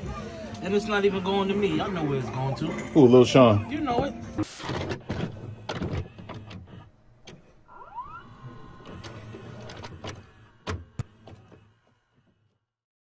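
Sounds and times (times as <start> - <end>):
mechanical clicks and clunks: 4.4 - 12.4
low hum: 5.0 - 12.6
rising motor whine: 7.6 - 12.2.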